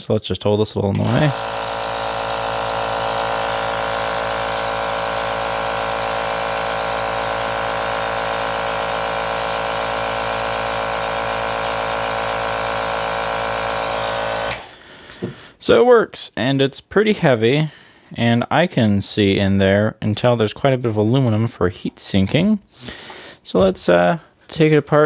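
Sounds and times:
compressor buzzing hum: 0.9s - 15.6s.

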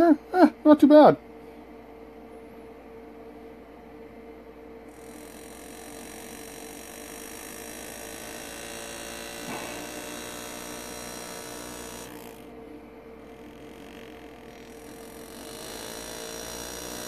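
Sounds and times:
air graver buzzing: 4.8s - 17.0s.

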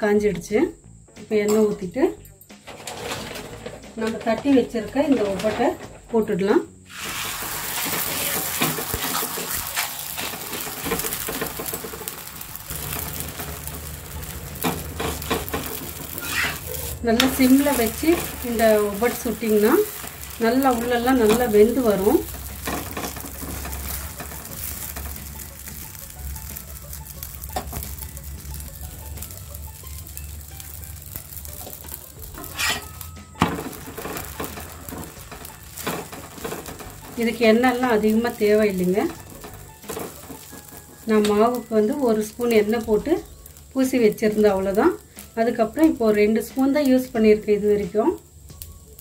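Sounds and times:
oil sizzling on a hot griddle: 6.7s - 49.0s
steel spatula clicks and scrapes: 7.7s - 26.0s, 30.6s - 37.2s.

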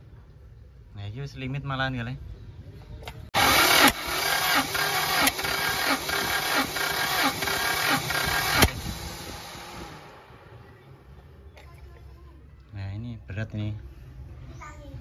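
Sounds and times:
car engine cranking: 3.4s - 10.3s.

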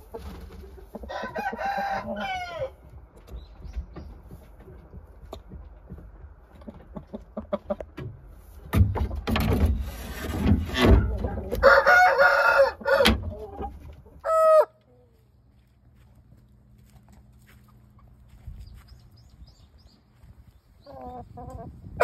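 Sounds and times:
rooster crowing: 1.1s - 2.8s, 11.6s - 13.2s, 14.2s - 14.7s.

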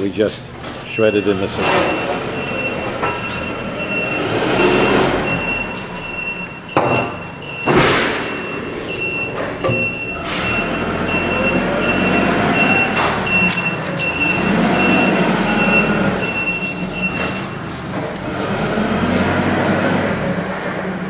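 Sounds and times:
high electronic beeps: 0.9s - 17.7s.

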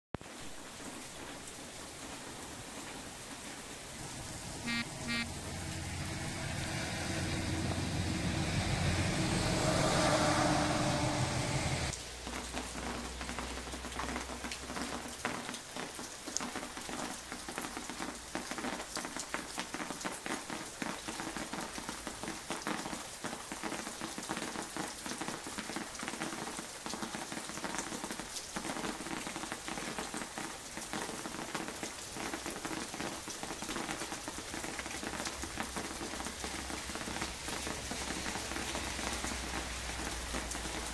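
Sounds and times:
rain falling: 0.2s - 40.9s
drops dripping off roof edge: 11.9s - 40.9s.

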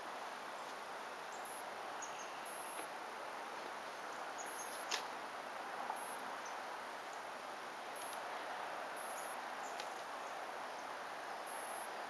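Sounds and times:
woodland ambient hiss: 0.0s - 12.0s
high insect chirps: 4.4s - 5.0s, 9.0s - 12.0s.

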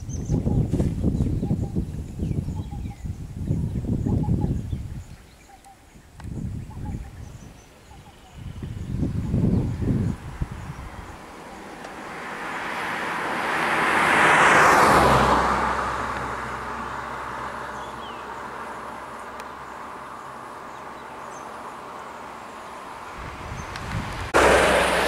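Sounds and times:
car passing by: 9.3s - 25.0s.

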